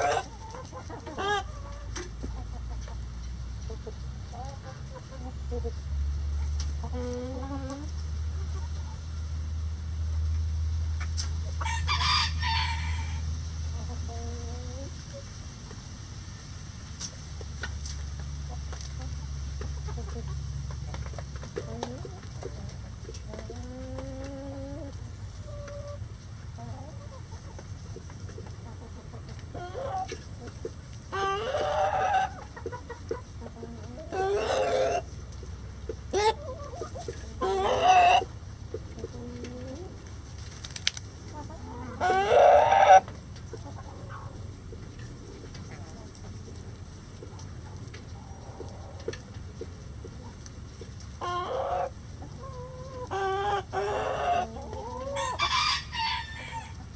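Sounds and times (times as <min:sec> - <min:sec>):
loud chicken calls: 0:00.0 - 0:01.9, 0:11.5 - 0:13.3, 0:29.5 - 0:30.2, 0:31.1 - 0:33.2, 0:33.8 - 0:35.2, 0:36.1 - 0:38.4, 0:41.4 - 0:43.2, 0:51.2 - 0:56.9
hens clucking: 0:00.0 - 0:56.9
rooster crowing: 0:11.6 - 0:13.3, 0:55.1 - 0:56.8.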